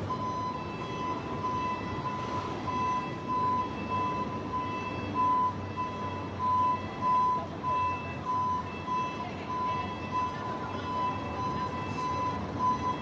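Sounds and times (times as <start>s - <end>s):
reversing alarm beeping: 0.0s - 13.0s
truck engine rumble: 0.0s - 13.0s.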